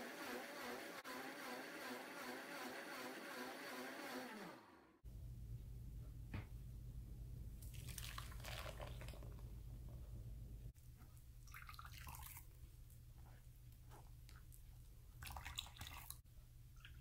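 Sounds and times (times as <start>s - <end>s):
low steady hum: 5.1s - 17.0s
juice splashing into strainer: 7.6s - 9.5s, 11.4s - 12.6s, 15.2s - 16.2s.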